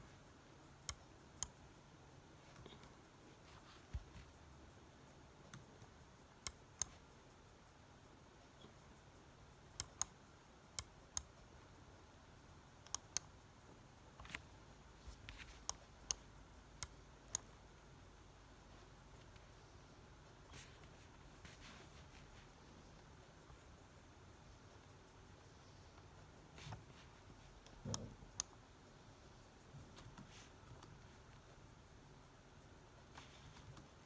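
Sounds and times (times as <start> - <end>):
faint room hiss: 0.0 - 34.0
computer mouse clicking: 0.7 - 1.7, 5.4 - 7.2, 9.6 - 11.7, 12.8 - 13.4, 14.1 - 17.7, 25.9 - 28.6, 33.1 - 34.0.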